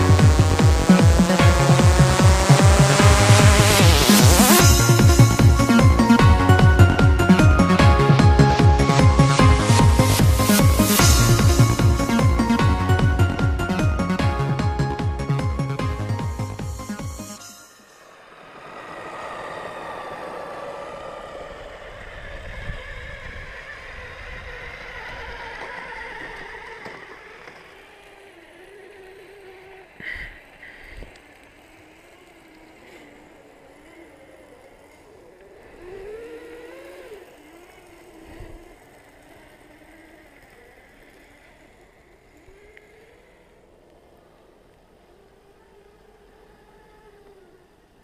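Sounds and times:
electric motors and gearboxes whining: 0.0s - 48.0s.

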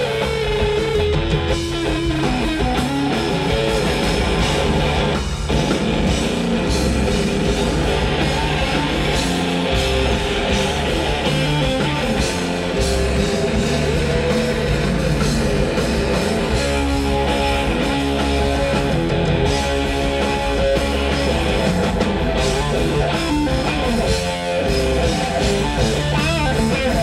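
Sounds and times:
live rock band playing: 0.0s - 27.0s.

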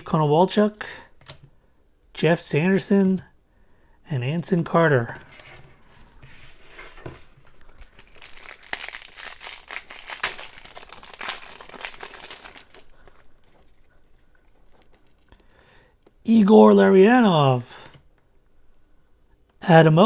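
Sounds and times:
wrapper crinkling and tearing: 7.4s - 15.3s.

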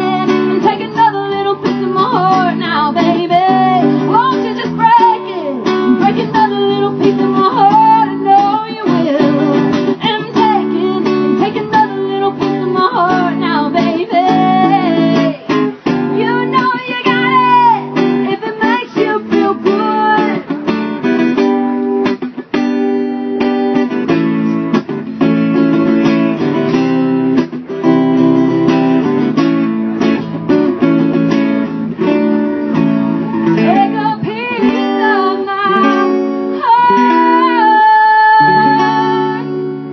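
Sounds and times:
person singing: 0.0s - 20.5s, 33.4s - 39.9s
strummed acoustic guitar: 0.0s - 39.9s.

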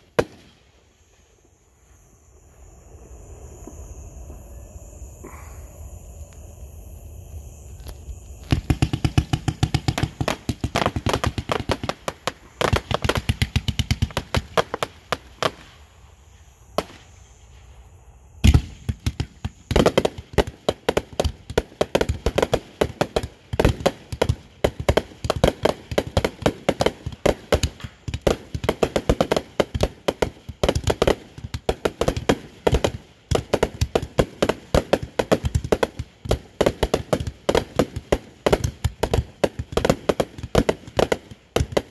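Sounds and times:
firecrackers popping: 0.0s - 0.7s, 7.8s - 15.8s, 16.8s - 17.2s, 18.4s - 41.9s.

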